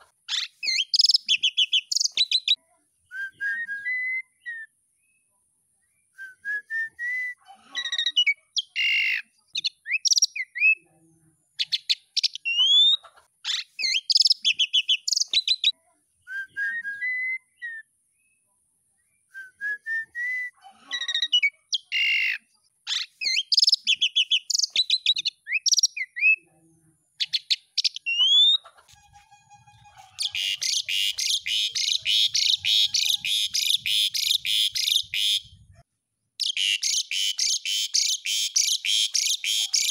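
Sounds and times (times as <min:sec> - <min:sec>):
starling singing: 0:27.6 - 0:35.7, 0:36.4 - 0:39.9
harsh rattling bird chatter: 0:30.1 - 0:35.5.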